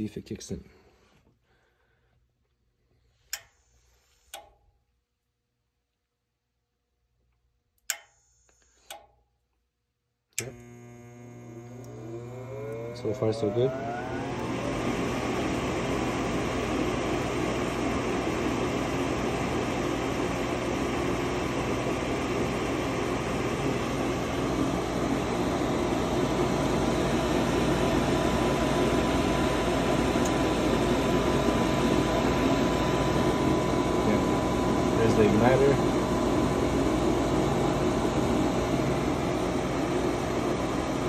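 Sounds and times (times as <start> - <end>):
furnace motor whirring and whining: 10.4 - 41.0.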